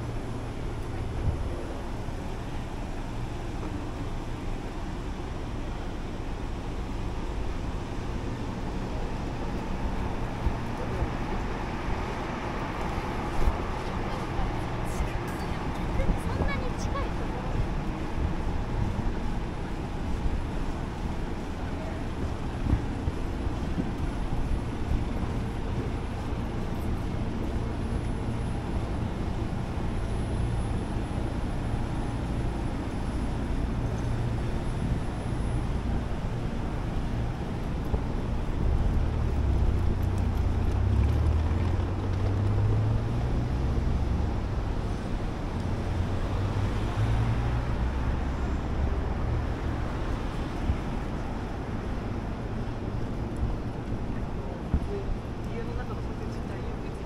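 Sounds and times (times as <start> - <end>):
passing traffic rumble: 0.0 - 57.0.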